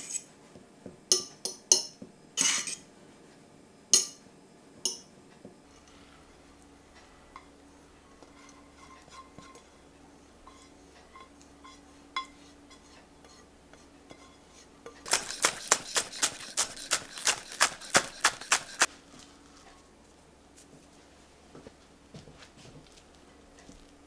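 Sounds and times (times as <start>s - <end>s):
couscous pouring into glass bowl: 15.1s - 18.9s
knife chopping on wooden board: 15.1s - 18.9s.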